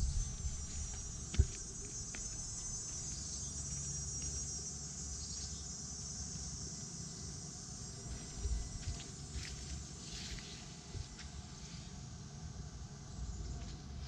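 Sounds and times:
low rumble: 0:00.0 - 0:02.9
insects trilling: 0:00.0 - 0:14.0.

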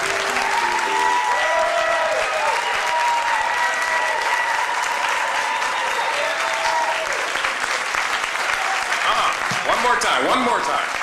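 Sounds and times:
cheering whoops: 0:00.0 - 0:09.3
audience applauding: 0:00.0 - 0:11.0.

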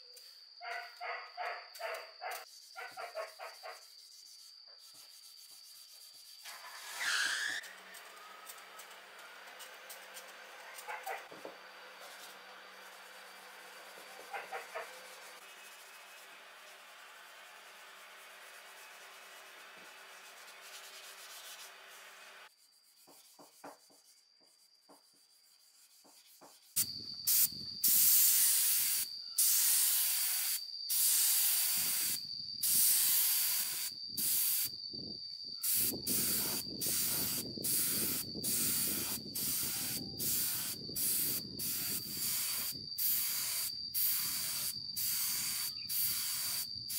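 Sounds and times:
sanding pad rubbing: 0:04.0 - 0:08.2, 0:12.0 - 0:26.8
spray gun hissing bursts: 0:27.3 - 0:34.7, 0:35.6 - 0:46.9.

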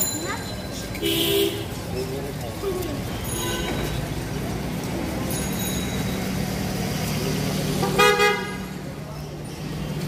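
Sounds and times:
vehicle horn: 0:07.9 - 0:08.6.

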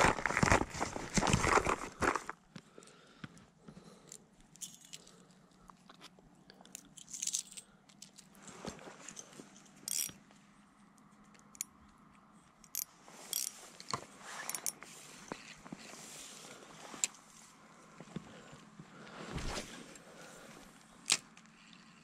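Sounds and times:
fishing tackle clicks and rustles: 0:04.0 - 0:10.2, 0:12.7 - 0:16.0.

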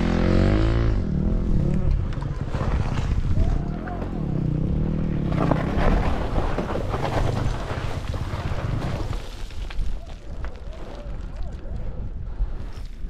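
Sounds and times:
dirt bike engine at low revs: 0:00.0 - 0:10.5
rocks and gravel crunching: 0:01.7 - 0:13.0
wind buffeting microphone: 0:06.2 - 0:13.0.

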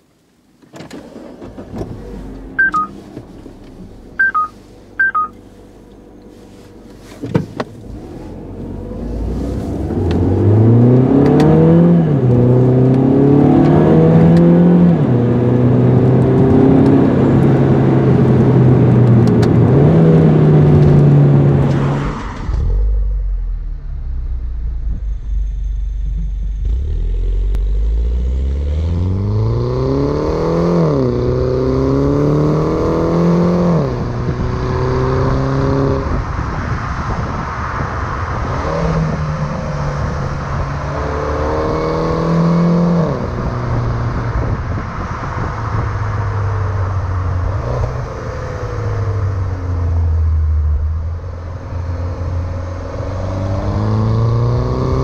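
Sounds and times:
car engine accelerating: 0:00.8 - 0:55.0
short electronic chimes: 0:02.6 - 0:03.0, 0:04.2 - 0:05.4.

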